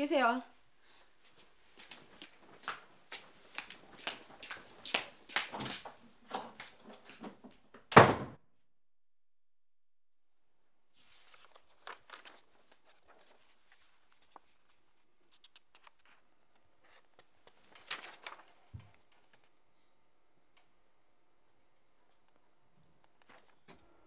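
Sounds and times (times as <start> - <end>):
paper sheets rustling: 1.2 - 7.2, 11.0 - 19.6, 23.2 - 23.6.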